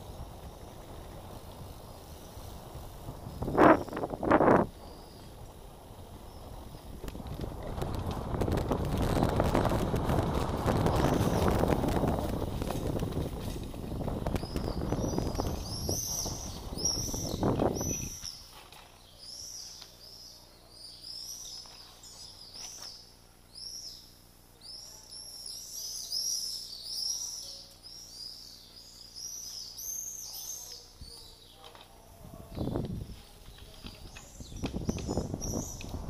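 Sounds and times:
bike tyres rumbling on stone: 0.0s - 19.6s, 32.6s - 36.0s
small birds chirping: 0.0s - 36.0s.

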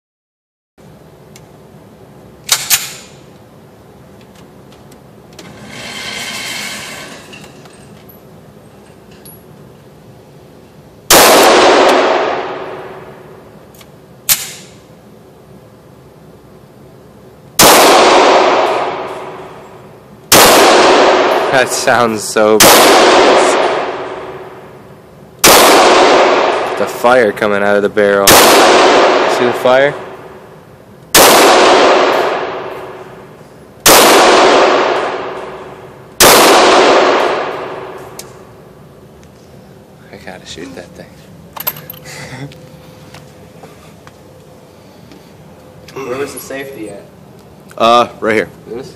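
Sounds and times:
pistol shots echoing: 11.1s - 13.1s, 17.6s - 19.5s, 20.3s - 22.0s, 22.6s - 24.5s, 25.4s - 27.4s, 28.2s - 30.4s, 31.1s - 33.2s, 33.8s - 38.1s.

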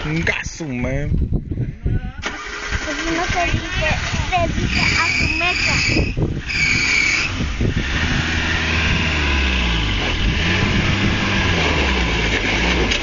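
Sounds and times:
engine revving: 2.3s - 13.0s
high-pitched squeal: 4.7s - 7.4s.

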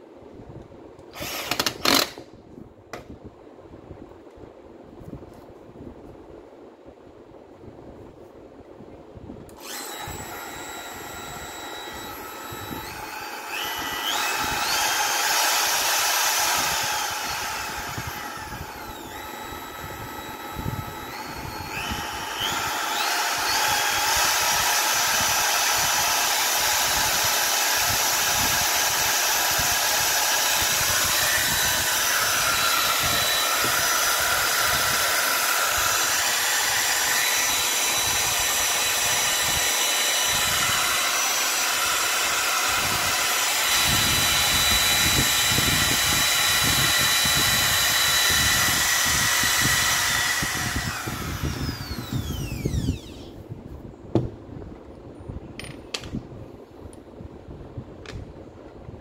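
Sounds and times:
router motor whining: 1.2s - 2.2s, 9.6s - 53.4s.

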